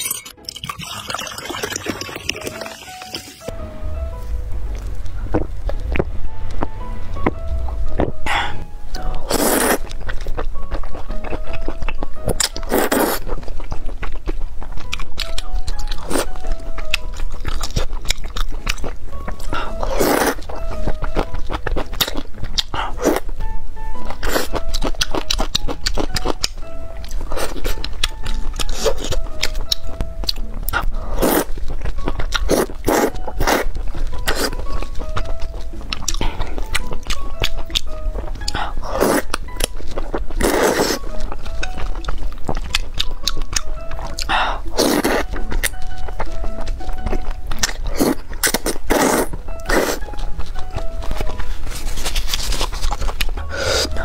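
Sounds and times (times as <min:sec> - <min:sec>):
background music: 0:00.0 - 0:54.0
wet chewing and mouth clicks: 0:08.0 - 0:23.4, 0:24.0 - 0:54.0
person slurping noodles: 0:09.2 - 0:09.9, 0:38.6 - 0:39.3, 0:40.4 - 0:41.0, 0:44.2 - 0:45.3, 0:47.9 - 0:50.0, 0:53.5 - 0:54.0
noodle slurps: 0:47.9 - 0:50.0.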